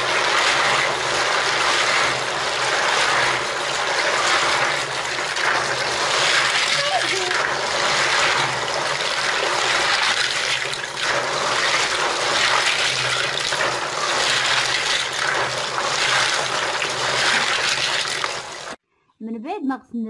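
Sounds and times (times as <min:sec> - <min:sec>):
shells scrubbed in water: 0:00.0 - 0:18.8
tap water pouring: 0:00.0 - 0:18.8.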